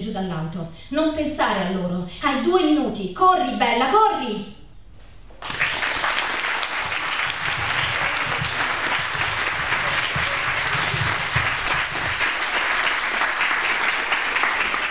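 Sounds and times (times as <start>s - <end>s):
audience applauding: 5.4s - 14.9s.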